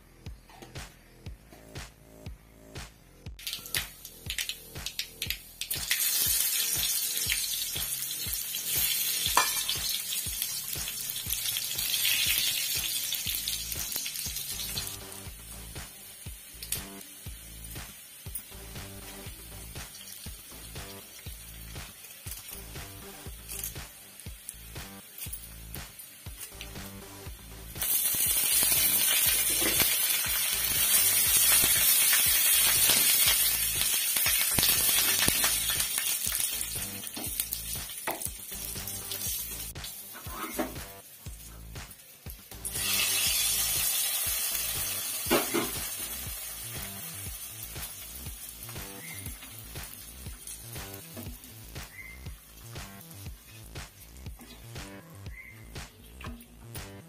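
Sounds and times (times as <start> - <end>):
onion sizzling in hot oil: 3.4 - 54.7
spatula scraping wok: 40.1 - 40.8.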